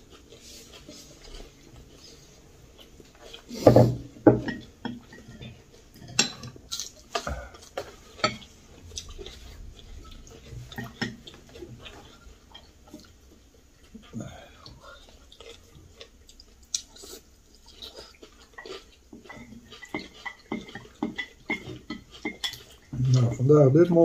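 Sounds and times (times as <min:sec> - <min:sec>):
utensils clinking on ceramic bowls: 0:03.6 - 0:08.6, 0:18.6 - 0:23.5.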